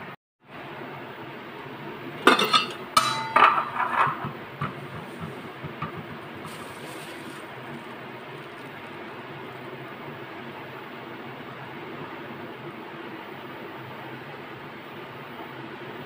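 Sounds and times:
metal pot lid clattering: 2.2 - 6.6.

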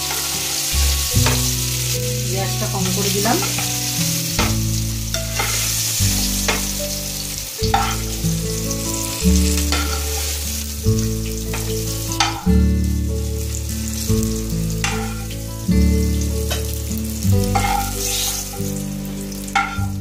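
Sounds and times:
metal spatula scraping a pan: 0.0 - 1.8, 2.6 - 6.8, 7.6 - 8.2, 9.5 - 10.4, 14.8 - 15.4, 17.5 - 18.8, 19.5 - 19.9
background music of low notes: 0.0 - 20.0
oil sizzling in a frying pan: 0.0 - 20.0.

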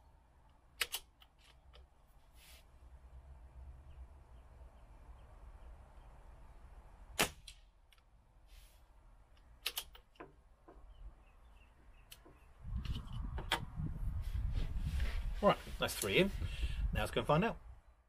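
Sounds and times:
metallic clicks of rifle action: 0.8 - 1.9, 9.3 - 10.3
air rifle shot: 7.2 - 7.6.

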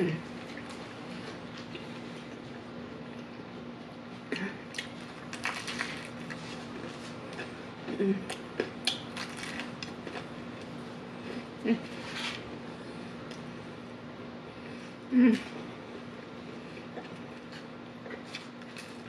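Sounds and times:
crunching fried chicken: 4.8 - 7.6, 8.4 - 10.7.

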